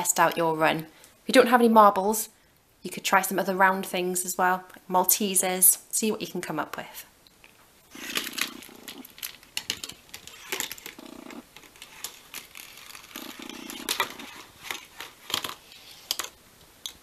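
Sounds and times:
marbles rolling rumble: 0:07.9 - 0:16.4.

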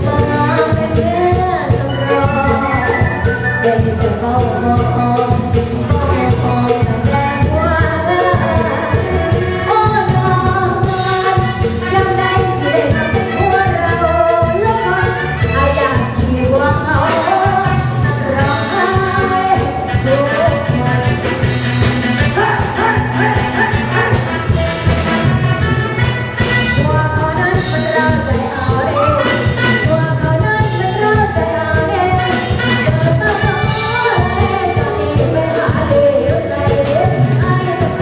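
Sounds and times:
woman singing into a microphone: 0:00.0 - 0:21.6, 0:26.7 - 0:38.0
band with bass and drum kit: 0:00.0 - 0:38.0.

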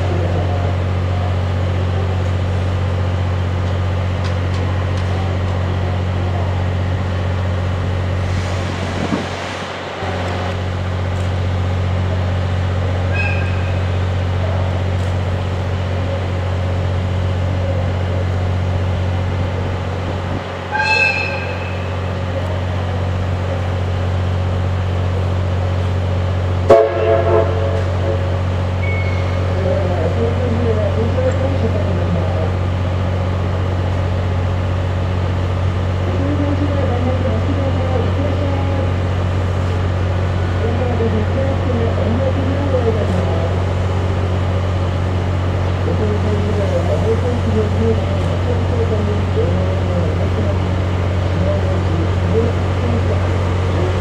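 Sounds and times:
steam whistle toots: 0:13.1 - 0:13.8, 0:20.7 - 0:21.9.

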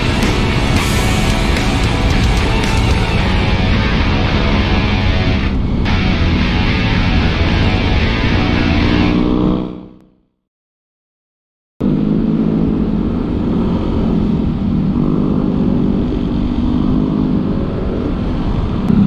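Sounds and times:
scooter engine running: 0:00.0 - 0:03.7.

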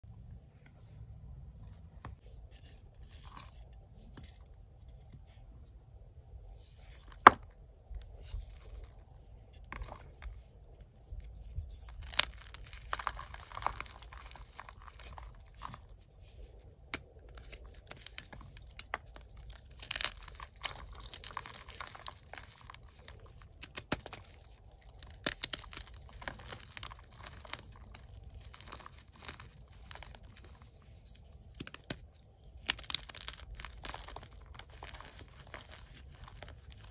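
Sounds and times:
chalk crunching and crumbling: 0:01.7 - 0:05.2, 0:08.0 - 0:36.9
chalk block cracking: 0:10.8 - 0:36.9.

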